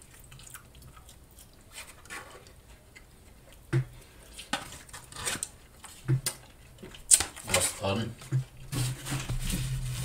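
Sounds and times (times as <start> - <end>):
fork scraping in cardboard box: 8.7 - 10.0.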